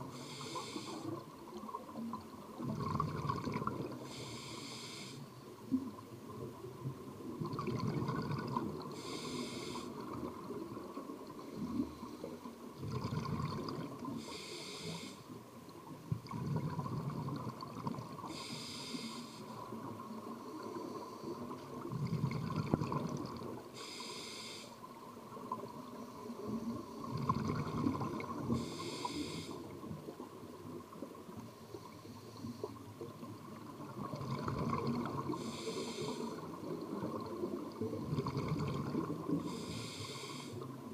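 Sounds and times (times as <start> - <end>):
regulator hissing inhale: 0.0 - 1.3, 4.0 - 5.4, 8.9 - 10.0, 14.0 - 15.4, 18.2 - 19.8, 23.7 - 24.9, 28.4 - 29.8, 31.6 - 32.8, 35.3 - 36.6, 39.3 - 40.7
bubbling exhale underwater: 2.6 - 4.0, 7.4 - 8.8, 12.8 - 14.0, 16.2 - 18.2, 21.9 - 23.5, 27.0 - 28.7, 33.8 - 35.6, 36.7 - 39.6.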